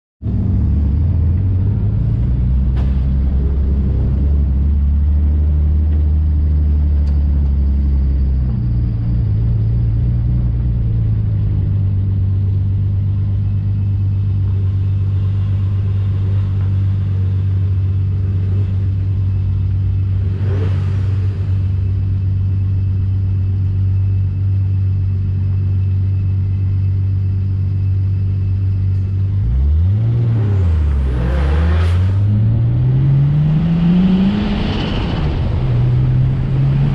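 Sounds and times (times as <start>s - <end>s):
car engine idling: 0.2s - 36.9s.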